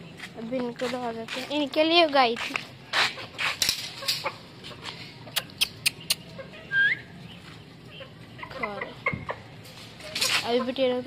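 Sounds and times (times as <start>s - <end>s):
chickens calling: 2.8s - 11.0s
sharp clicks: 5.3s - 6.3s.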